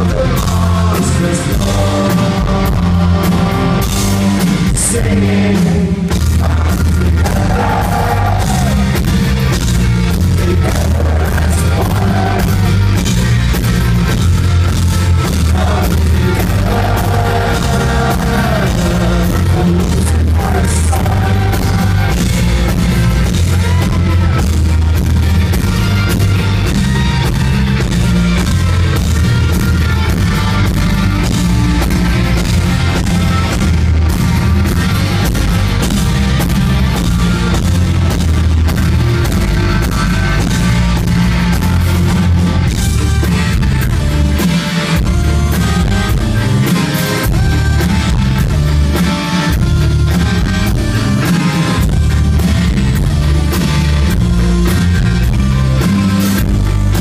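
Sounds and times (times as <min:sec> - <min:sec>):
person singing: 0:00.0 - 0:08.9, 0:10.4 - 0:12.8, 0:15.3 - 0:22.3
rock band playing: 0:00.0 - 0:57.0.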